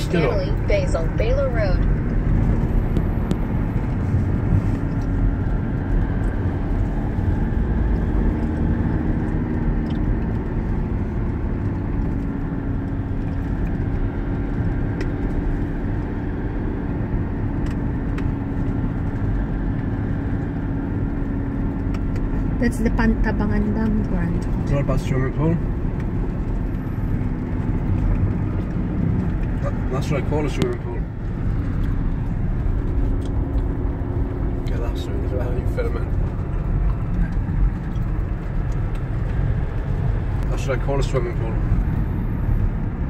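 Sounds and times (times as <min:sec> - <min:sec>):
road noise inside car: 0:00.0 - 0:43.0.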